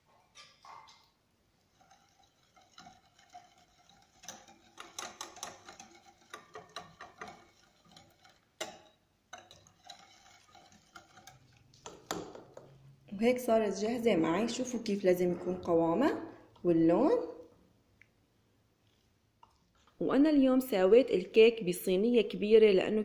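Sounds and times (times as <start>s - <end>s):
whisk clicking against glass bowl: 1.7s - 12.7s.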